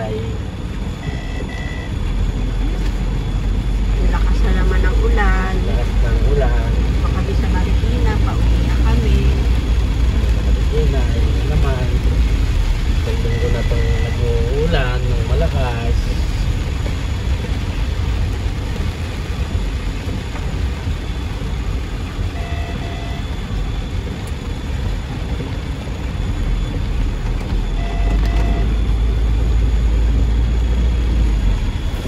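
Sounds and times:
heavy rain on a car: 0.0s - 32.0s
road and engine rumble: 0.0s - 32.0s
short beeping tones: 1.0s - 2.0s, 22.3s - 23.4s, 27.6s - 29.2s.

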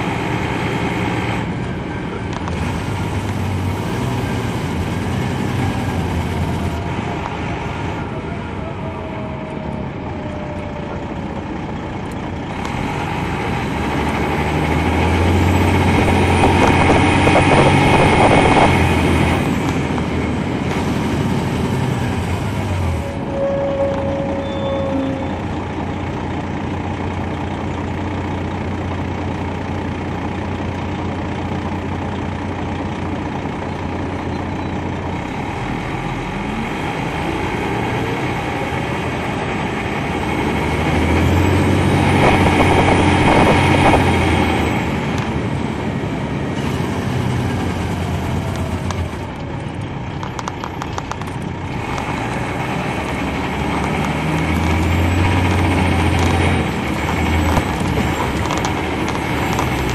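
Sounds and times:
bus engine running: 0.0s - 59.9s.

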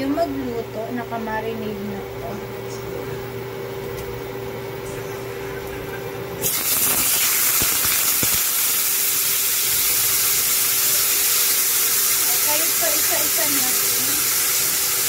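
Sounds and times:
steady hum: 0.0s - 15.0s
meat sizzling in hot oil: 6.4s - 15.0s.

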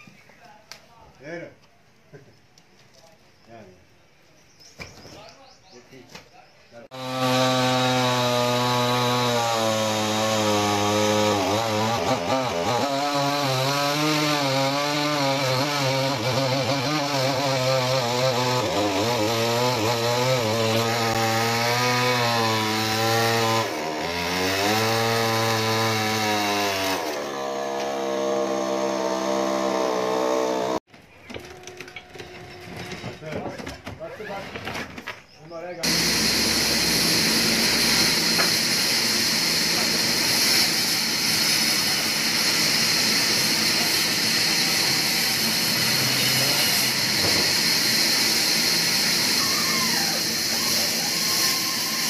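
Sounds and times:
chainsaw cutting log: 6.9s - 30.8s, 35.8s - 52.0s.

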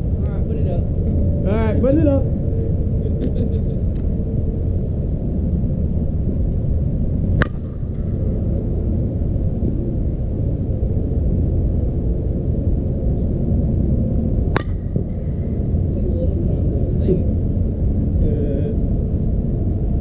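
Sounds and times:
steady low rumble: 0.0s - 20.0s
bat striking ball: 7.3s - 8.3s, 14.5s - 15.4s.

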